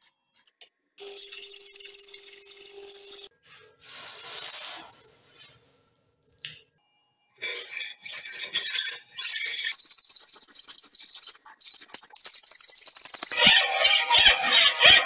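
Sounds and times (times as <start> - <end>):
hiss: 3.8 - 5.6
file scraping knife blade: 7.4 - 13.3.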